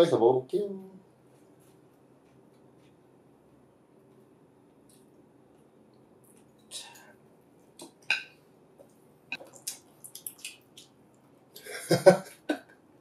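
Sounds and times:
lime squishing: 0:09.4 - 0:11.0.

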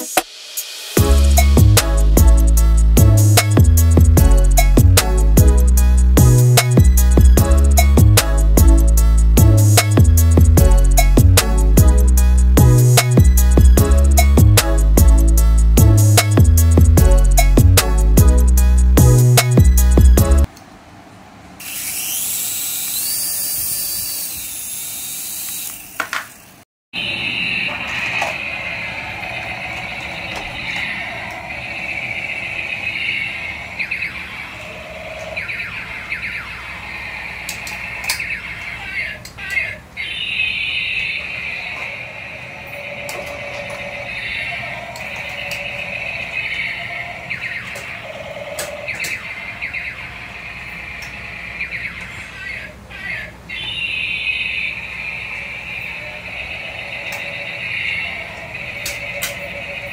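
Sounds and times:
toy helicopter rotor whirring: 0:21.6 - 0:26.1
toy tank motors whining: 0:21.6 - 0:26.2
quick falling electronic sweeps: 0:27.0 - 0:38.5.

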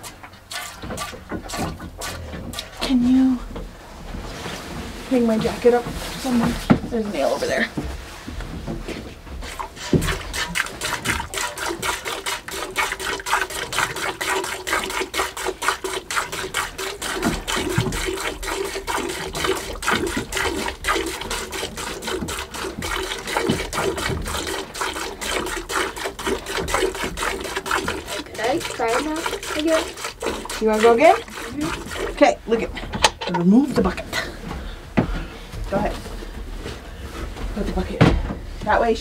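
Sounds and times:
milk squirting into metal pail: 0:00.0 - 0:03.2, 0:09.4 - 0:34.0.

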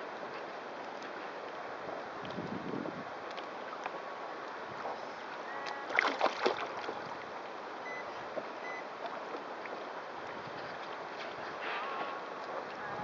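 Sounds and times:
water lapping against kayak hull: 0:00.0 - 0:13.0
sharp water slaps: 0:05.9 - 0:07.0.

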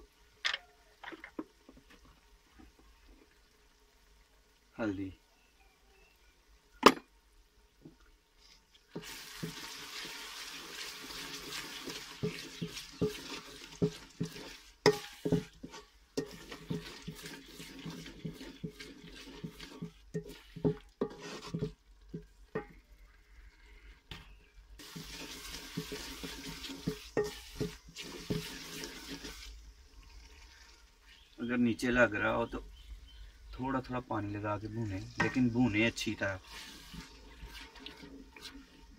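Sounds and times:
food sizzling in oil: 0:00.0 - 0:38.9
wooden spoon scraping pot: 0:08.4 - 0:31.5, 0:34.4 - 0:38.9.

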